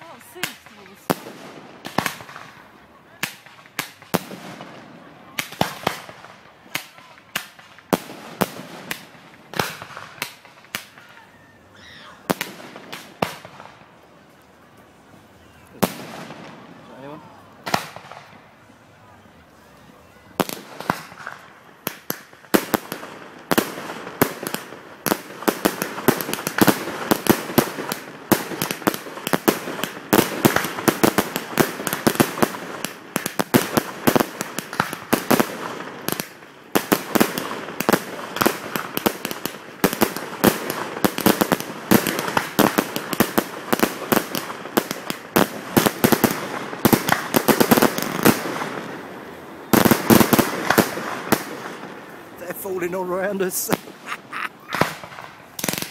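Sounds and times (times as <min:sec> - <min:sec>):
fireworks launching and bursting: 0:00.0 - 0:11.2, 0:11.9 - 0:13.9, 0:15.7 - 0:18.5, 0:20.4 - 0:55.9.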